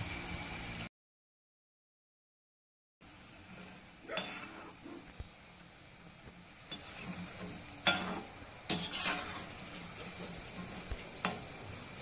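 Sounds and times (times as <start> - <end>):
food sizzling in hot oil: 0.0 - 0.9, 3.0 - 12.0
metal skimmer scraping pan: 3.5 - 5.1, 6.7 - 11.8.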